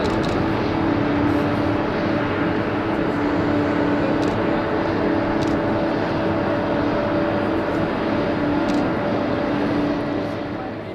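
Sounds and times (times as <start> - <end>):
jet engines rushing: 0.0 - 10.9.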